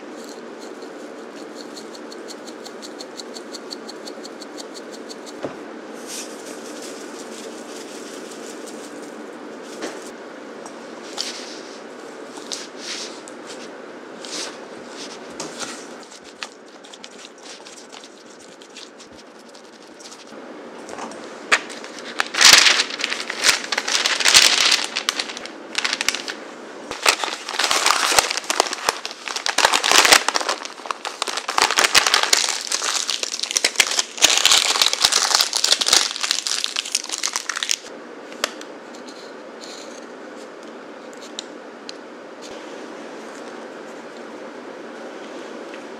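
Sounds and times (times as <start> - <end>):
parchment paper crinkling: 6.1 - 10.1, 16.0 - 20.4, 21.5 - 37.9.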